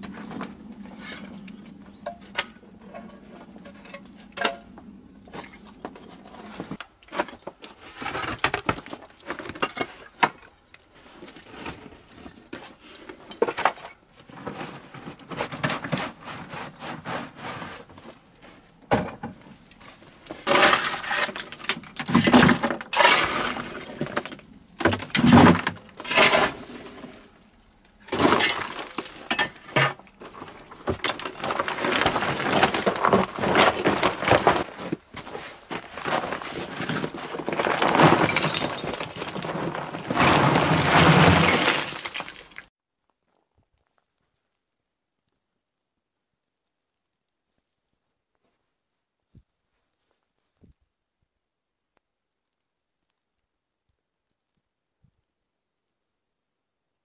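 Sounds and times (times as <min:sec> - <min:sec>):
rock chips clattering into container: 0:36.0 - 0:42.7.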